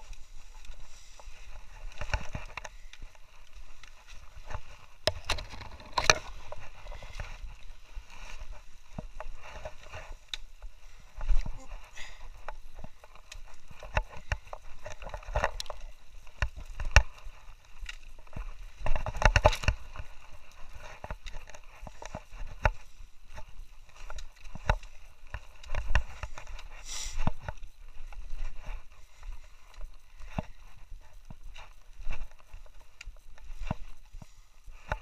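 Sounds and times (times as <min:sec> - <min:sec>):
footsteps on loose stones: 0:00.0 - 0:35.0
brush scraping: 0:26.0 - 0:27.3.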